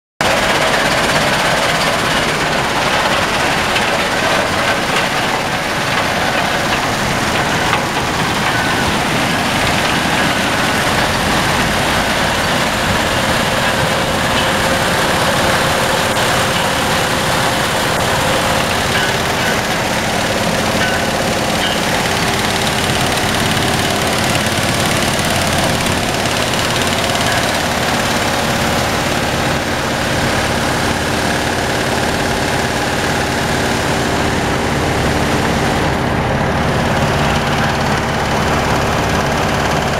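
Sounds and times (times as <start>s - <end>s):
vibrating screen rattling: 0.2s - 28.8s
engine droning: 0.2s - 39.9s.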